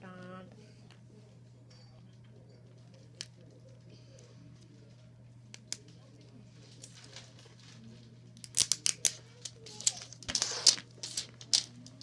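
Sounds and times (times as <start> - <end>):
scraping plastic crackle: 6.7 - 12.0
wrapping crinkling: 8.5 - 12.0.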